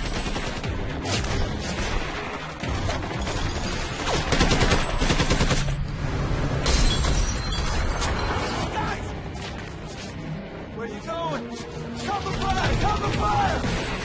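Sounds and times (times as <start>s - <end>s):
machine gun firing: 0.0s - 5.8s.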